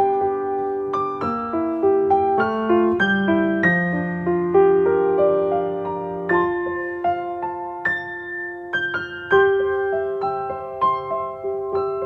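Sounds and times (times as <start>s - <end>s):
slow piano music: 0.0s - 12.0s.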